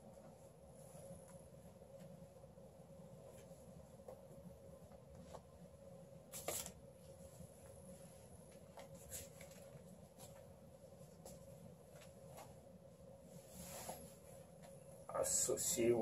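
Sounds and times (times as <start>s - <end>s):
faint steady hum: 0.0s - 16.0s
cloth rustling: 6.4s - 14.9s.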